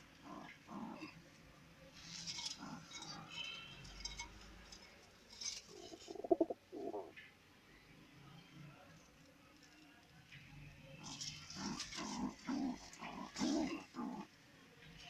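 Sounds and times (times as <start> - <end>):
pigeon cooing: 0.0 - 1.2, 5.7 - 7.2, 11.0 - 14.3.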